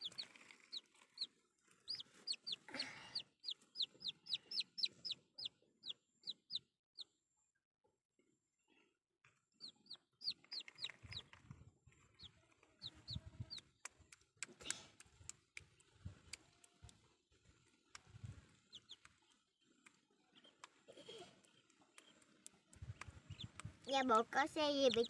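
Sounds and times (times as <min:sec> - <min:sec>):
chick peeping: 0:00.0 - 0:07.1, 0:09.6 - 0:14.0, 0:18.0 - 0:20.8, 0:21.4 - 0:23.9.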